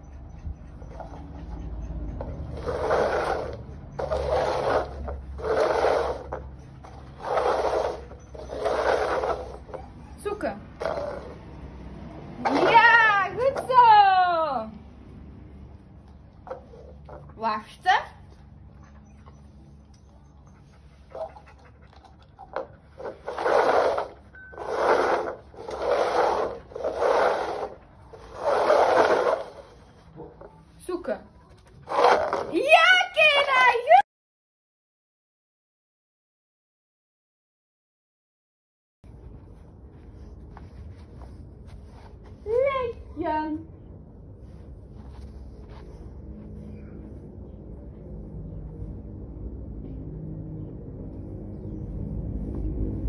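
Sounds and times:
plastic cups scraping on tile: 2.5 - 9.7, 10.8 - 11.4, 12.4 - 12.8, 22.5 - 29.9, 31.8 - 32.6.

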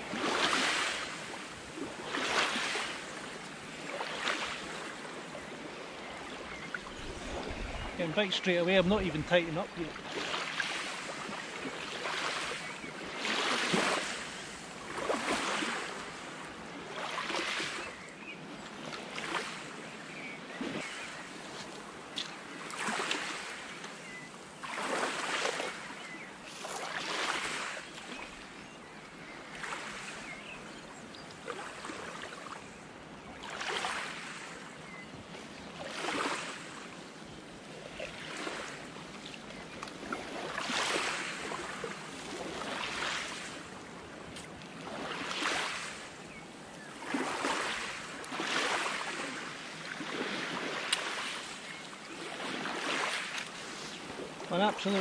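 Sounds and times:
small waves breaking on beach: 0.0 - 55.0.

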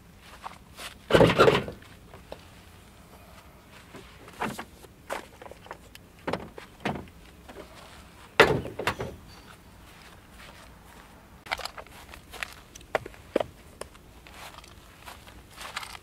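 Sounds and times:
footsteps: 6.5 - 16.0
trunk lid slamming shut: 8.4 - 9.2.

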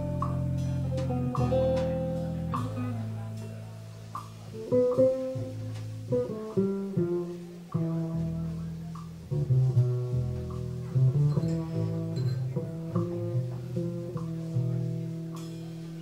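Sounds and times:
electric guitar notes: 0.0 - 16.0
faint percussion: 0.0 - 16.0
upright double bass: 0.0 - 16.0.

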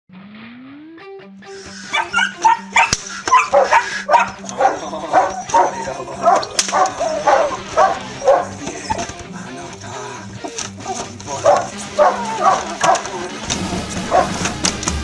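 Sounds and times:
puppy barking: 1.8 - 13.5, 14.1 - 14.5.

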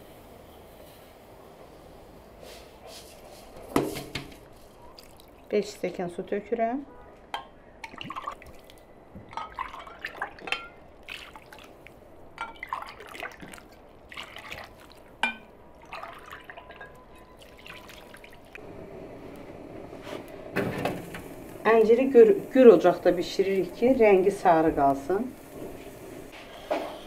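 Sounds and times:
water pouring and splashing: 4.5 - 5.5, 7.8 - 18.6.

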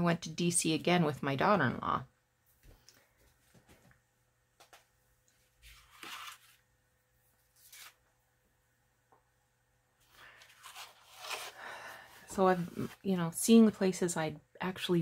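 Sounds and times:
paper page rustling: 5.5 - 6.6, 7.4 - 8.0, 10.0 - 11.6.

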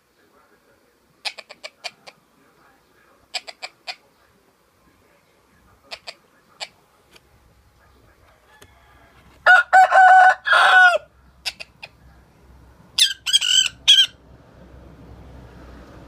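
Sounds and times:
parrot imitating rooster crow: 8.5 - 11.7, 13.0 - 14.2
shrill parrot squawks: 13.0 - 14.2.

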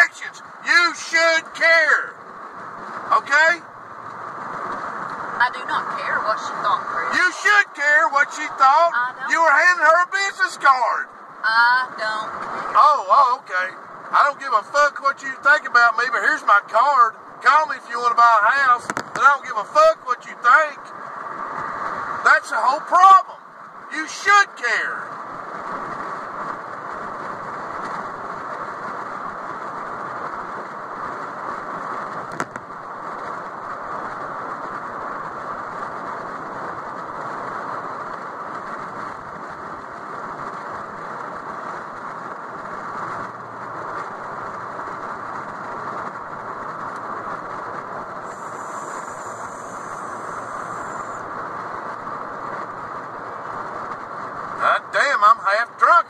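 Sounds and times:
car cabin road and engine noise: 0.0 - 56.0.

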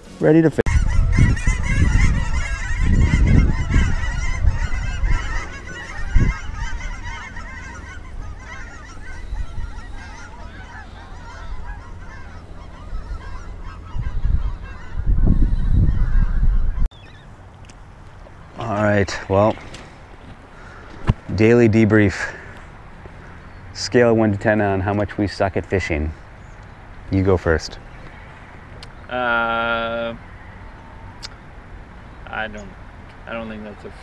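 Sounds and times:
geese honking: 0.0 - 17.2.

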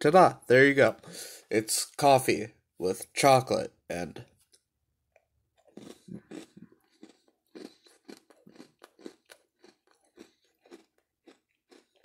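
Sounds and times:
person chewing crunchy cookie: 5.1 - 12.0.

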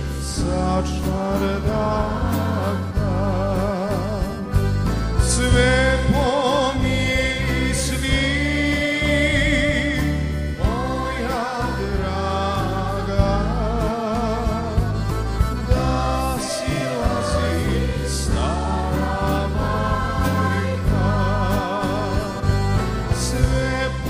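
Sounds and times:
accordion: 0.0 - 24.0
bass line: 0.0 - 24.0
drums: 0.0 - 24.0
keyboard: 0.0 - 24.0
choir singing with vibrato: 5.3 - 14.7, 15.5 - 24.0.

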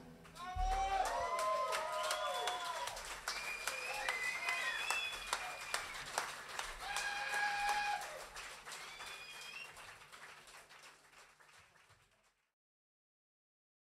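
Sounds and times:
audience clapping: 0.0 - 12.5
shouts: 0.4 - 3.0, 3.7 - 5.6, 6.8 - 8.3
audience whistling: 0.5 - 10.0.

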